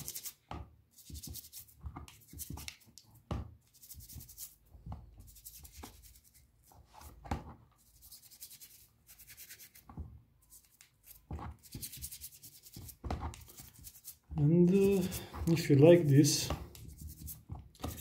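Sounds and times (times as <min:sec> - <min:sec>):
toothbrush scrubbing: 0:00.0 - 0:00.4, 0:07.8 - 0:09.8, 0:10.5 - 0:18.0.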